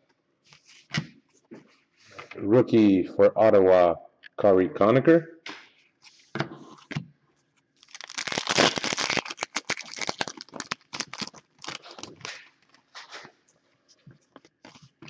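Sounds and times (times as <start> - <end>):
foil wrapper tearing and crinkling: 7.8 - 12.4.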